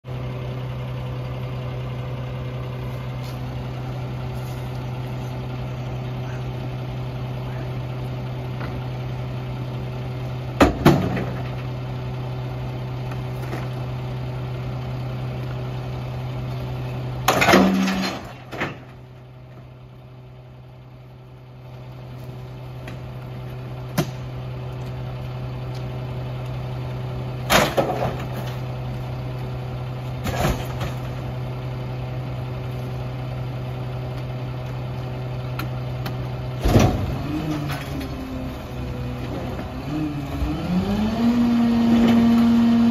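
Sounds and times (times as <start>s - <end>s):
garbage truck idling: 0.1s - 42.9s
junk crashing into hopper: 10.6s - 11.7s, 17.2s - 19.2s, 27.4s - 28.7s, 30.1s - 31.3s, 36.6s - 38.5s.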